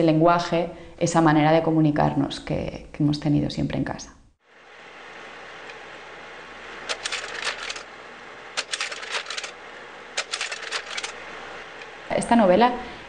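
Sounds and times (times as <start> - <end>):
steady hiss: 4.4 - 13.0
rapid clattering clicks: 6.8 - 7.9, 8.6 - 11.2.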